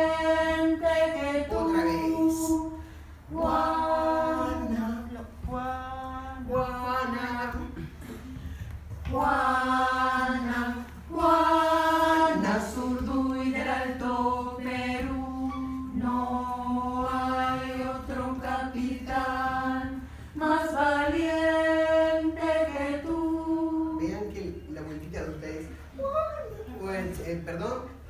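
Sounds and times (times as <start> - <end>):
women's choir singing: 0.0 - 7.9, 9.0 - 24.6.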